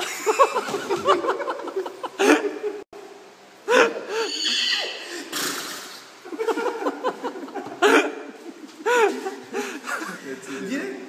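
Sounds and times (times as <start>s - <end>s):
men laughing: 0.0s - 2.9s, 3.6s - 4.3s, 6.2s - 11.0s
man imitating horse whinny: 4.2s - 5.1s.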